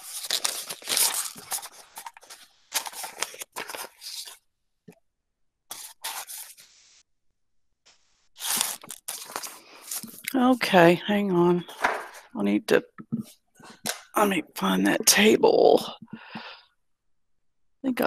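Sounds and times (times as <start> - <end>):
papers rustling: 0.0 - 4.4, 5.7 - 6.7, 8.4 - 10.3, 11.7 - 12.4.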